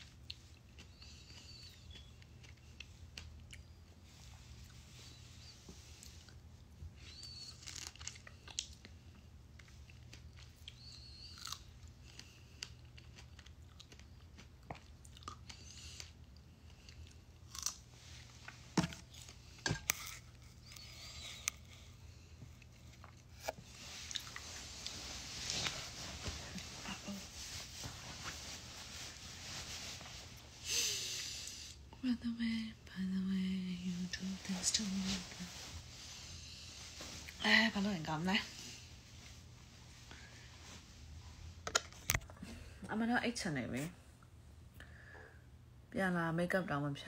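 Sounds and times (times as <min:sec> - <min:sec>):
faint low hum: 0:00.0 - 0:47.0
chewing and biting fruit: 0:09.7 - 0:19.4, 0:22.5 - 0:24.6
fabric rustling: 0:23.8 - 0:30.6.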